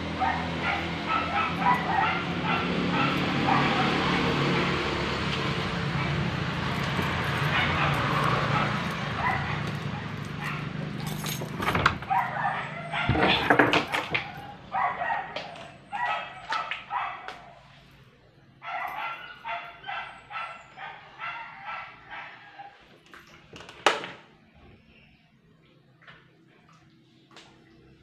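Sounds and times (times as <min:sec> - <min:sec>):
dog yipping and whimpering: 0:00.2 - 0:04.1, 0:07.4 - 0:10.6, 0:12.1 - 0:13.5, 0:18.6 - 0:22.8.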